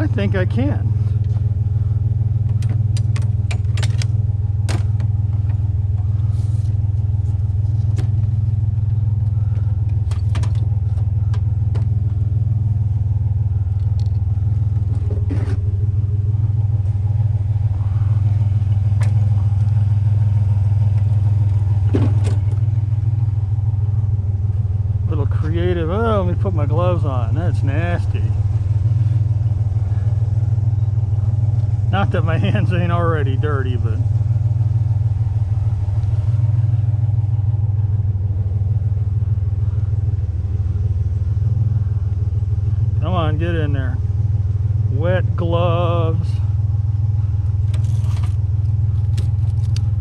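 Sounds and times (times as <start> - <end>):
pickup truck engine idling: 0.0 - 50.0
sharp knocks and clicks: 2.4 - 5.6.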